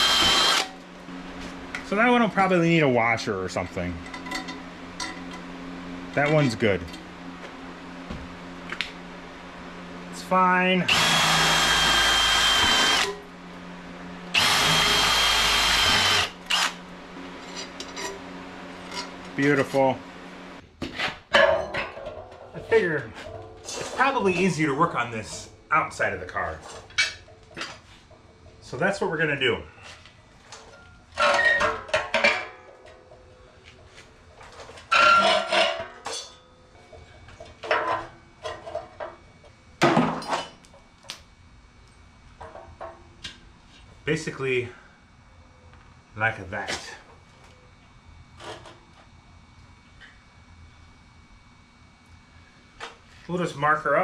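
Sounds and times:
cordless drill boring through metal: 0:00.0 - 0:00.7, 0:10.9 - 0:13.2, 0:14.3 - 0:16.8.

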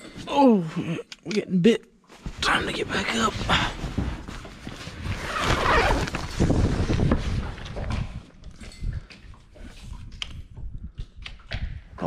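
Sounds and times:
tent fabric rustling: 0:02.1 - 0:07.5.

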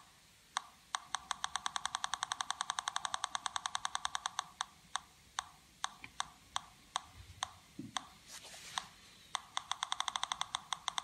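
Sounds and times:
metal detector clicking: 0:00.9 - 0:04.7, 0:08.8 - 0:11.0.

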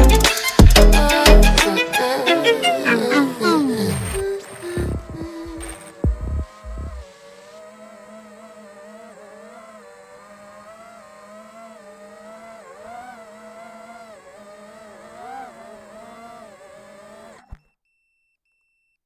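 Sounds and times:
drone motors whining: 0:00.0 - 0:17.7
drone thumping into grass: 0:03.9 - 0:07.0
faint short beeps: 0:17.5 - 0:19.0.

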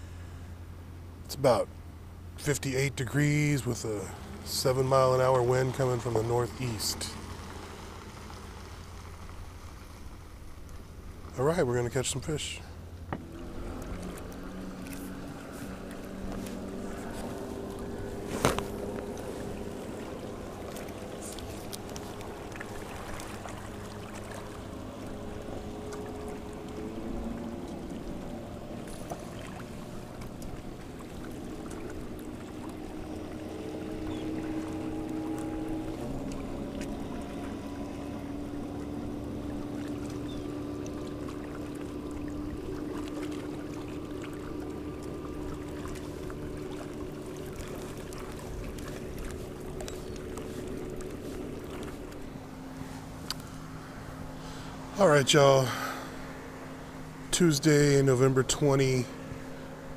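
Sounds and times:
distant motor droning: 0:00.0 - 0:59.9.

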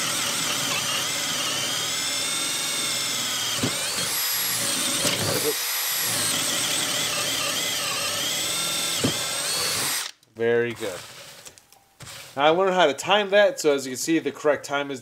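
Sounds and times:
drill motor whine: 0:00.0 - 0:10.1.

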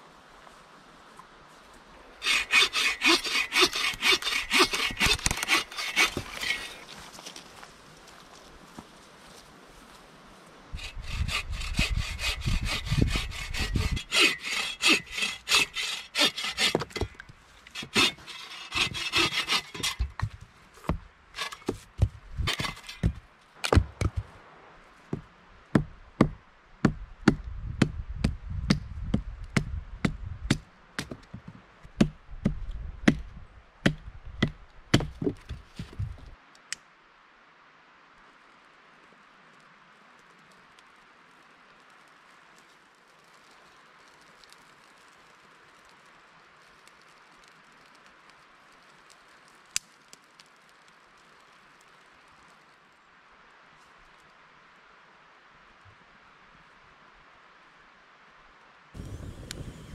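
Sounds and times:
hand saw cutting wood: 0:02.2 - 0:06.8, 0:10.8 - 0:20.4, 0:21.4 - 0:21.8, 0:22.5 - 0:23.2.

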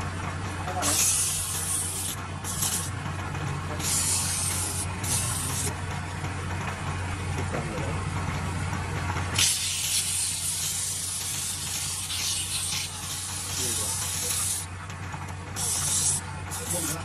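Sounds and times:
wood lathe motor humming: 0:00.0 - 0:17.0
metal scraper hissing on spinning wood: 0:00.8 - 0:05.8, 0:09.3 - 0:14.8, 0:15.5 - 0:17.0.

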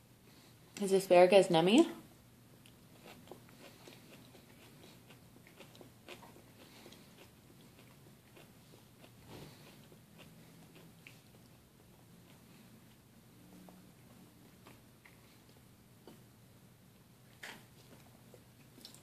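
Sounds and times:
baby eating clicks and smacks: 0:17.4 - 0:19.0.

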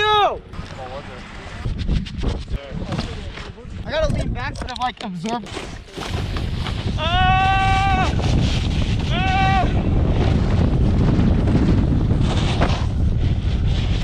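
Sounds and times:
wind buffeting microphone: 0:00.0 - 0:04.9, 0:05.6 - 0:14.0
person yelling: 0:07.0 - 0:08.2, 0:09.0 - 0:10.0.

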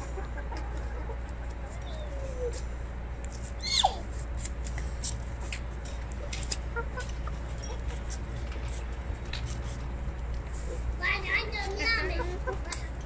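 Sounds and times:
chickens clucking: 0:00.0 - 0:02.6, 0:05.4 - 0:08.8, 0:11.6 - 0:13.0
steady low hum: 0:00.0 - 0:13.0.

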